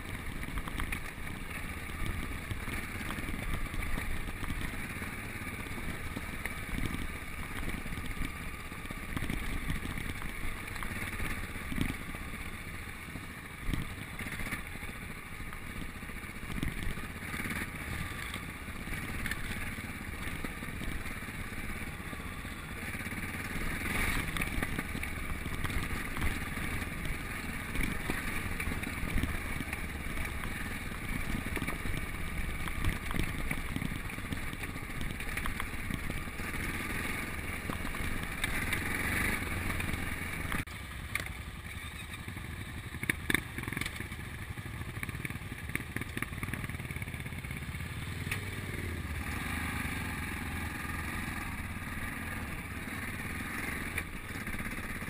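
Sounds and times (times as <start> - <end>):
motorcycle engine running: 0.0 - 55.0
motorcycle knocking over bumps: 15.4 - 21.7, 22.9 - 40.6.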